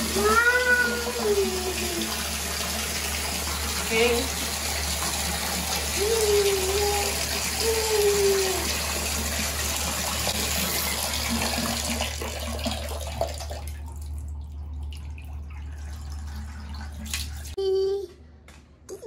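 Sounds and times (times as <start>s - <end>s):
child's voice: 0.0s - 2.1s, 6.0s - 8.8s, 17.6s - 18.2s
water running into a bathtub: 0.0s - 17.6s.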